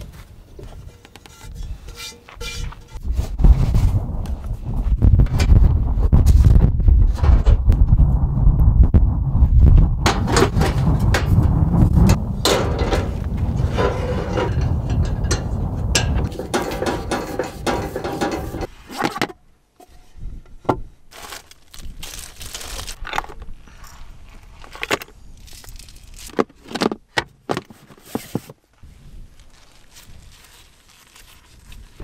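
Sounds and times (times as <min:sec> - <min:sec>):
steady rushing noise: 0:08.3 - 0:18.7.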